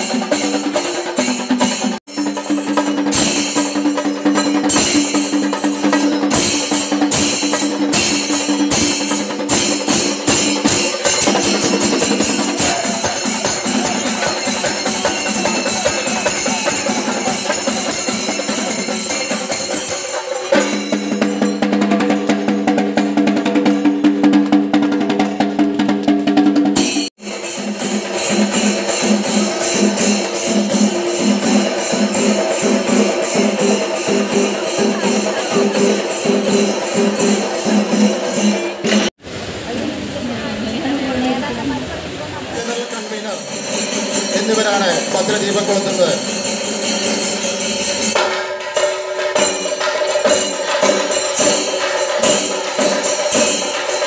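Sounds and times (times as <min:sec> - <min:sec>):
drums beaten with sticks: 0:00.0 - 0:39.2, 0:42.5 - 0:54.0.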